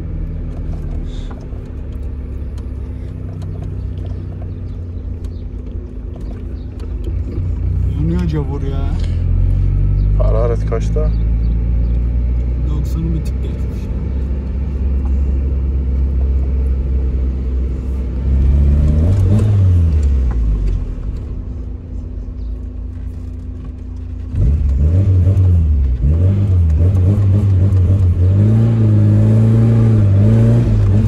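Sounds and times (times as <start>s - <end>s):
car engine revving: 0.0s - 31.0s.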